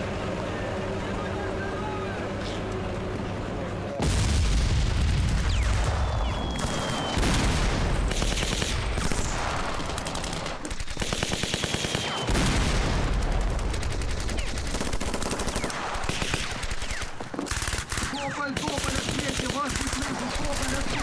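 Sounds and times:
heavy shell explosions: 4.0 - 21.0
machine-gun and rifle fire: 4.2 - 21.0.

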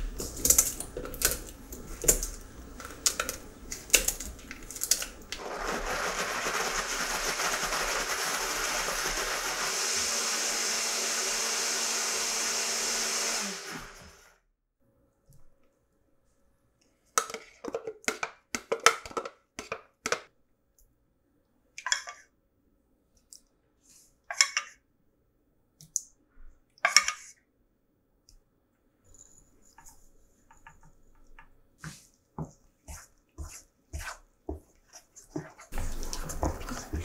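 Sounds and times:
wooden spoon scraping: 31.8 - 37.0.

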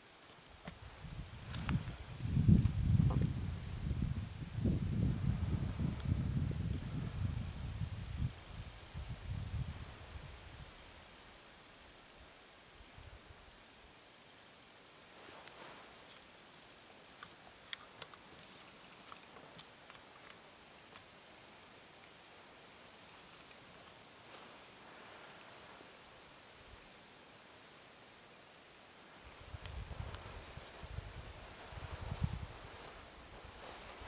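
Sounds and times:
insect chirping: 0.0 - 4.0, 6.7 - 34.0
faint clicks and rustles: 15.1 - 21.4.

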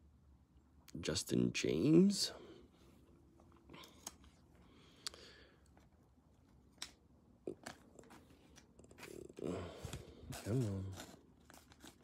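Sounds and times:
fingers handling cards: 6.4 - 12.0.

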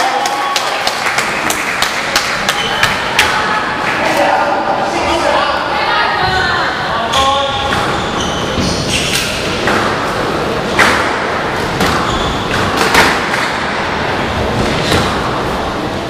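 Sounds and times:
squash ball knocks: 10.8 - 13.7.

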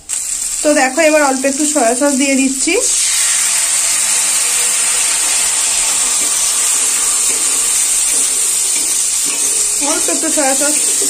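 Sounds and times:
chicken sizzling in a pan: 0.0 - 11.0
spatula stirring: 2.9 - 11.0.

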